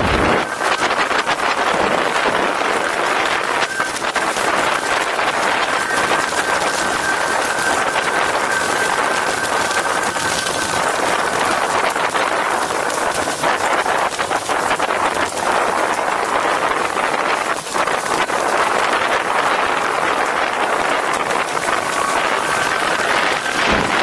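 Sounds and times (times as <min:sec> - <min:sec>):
steady high whistle: 0:00.0 - 0:12.9, 0:18.8 - 0:24.0
wind rushing over microphone: 0:00.0 - 0:24.0.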